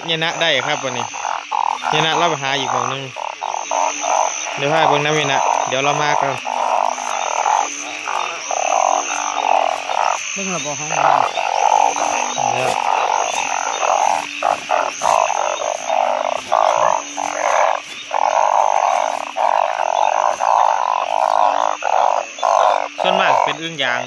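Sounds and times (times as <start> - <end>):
frogs calling: 0.0 - 24.0.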